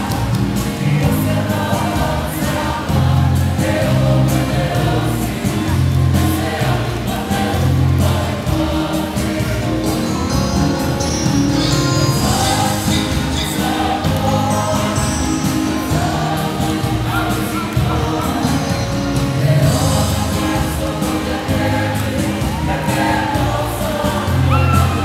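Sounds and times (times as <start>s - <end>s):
choir singing long held notes: 0.0s - 25.0s.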